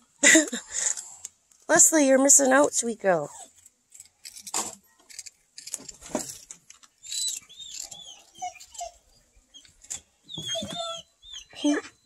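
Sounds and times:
high squeaky chirps: 0:07.0 - 0:12.0.

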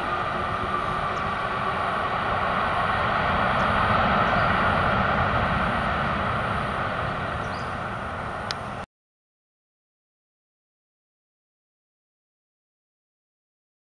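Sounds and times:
jet engines rushing: 0:00.0 - 0:08.9.

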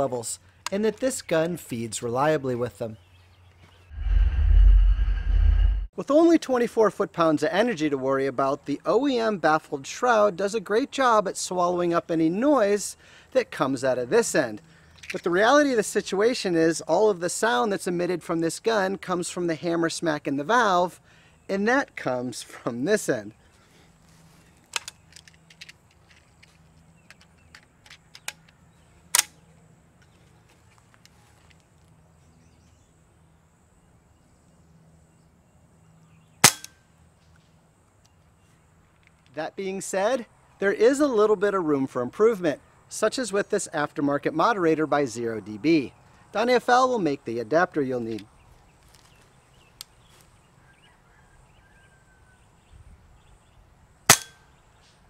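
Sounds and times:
faint birdsong: 0:00.0 - 0:05.7, 0:14.4 - 0:15.2, 0:20.3 - 0:44.2, 0:44.8 - 0:55.0
rifle handling clicks: 0:24.7 - 0:29.4.

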